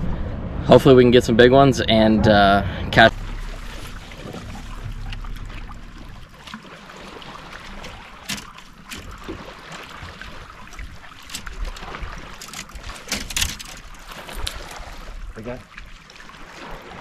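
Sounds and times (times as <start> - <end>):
wind rumble on microphone: 0.0 - 8.1
waves lapping against boat hull: 3.0 - 17.0
gear clicking and knocking: 8.2 - 9.4, 11.2 - 14.0.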